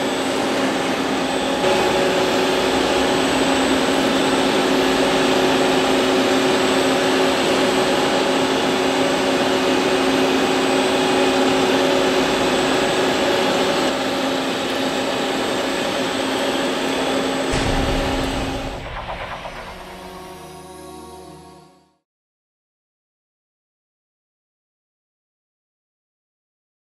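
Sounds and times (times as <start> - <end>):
lathe machine whine: 0.0 - 21.8
low machine rumble: 17.5 - 21.8.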